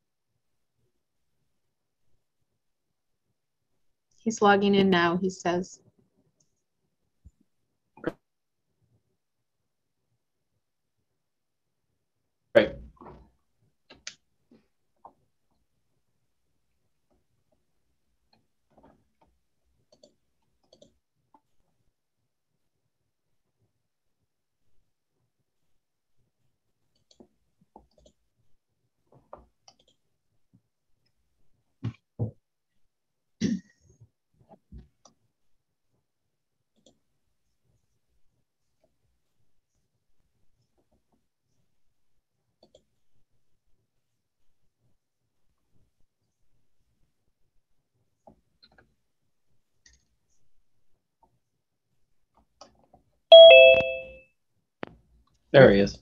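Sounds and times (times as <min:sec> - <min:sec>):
two-note join chime: 0:53.3 - 0:54.2.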